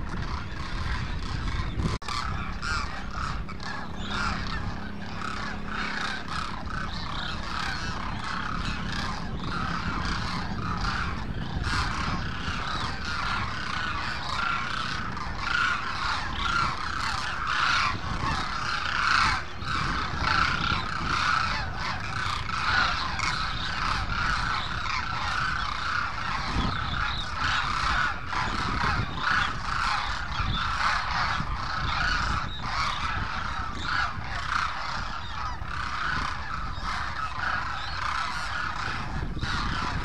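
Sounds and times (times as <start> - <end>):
cranes honking in chorus: 0.0 - 40.0.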